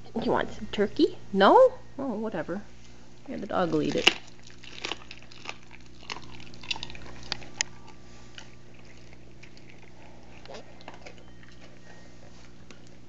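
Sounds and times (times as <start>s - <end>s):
steady low hum: 0.0s - 13.0s
dog gnawing crunching meat: 3.4s - 13.0s.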